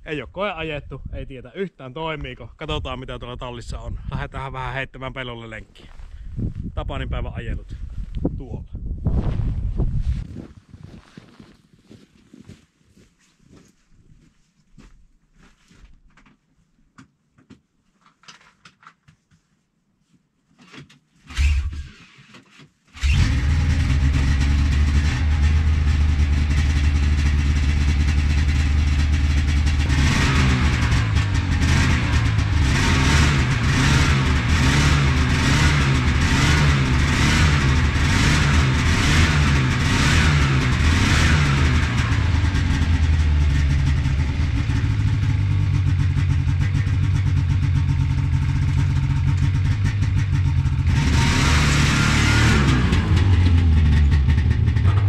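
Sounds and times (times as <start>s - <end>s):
snowmobile engine revving: 23.0s - 55.0s.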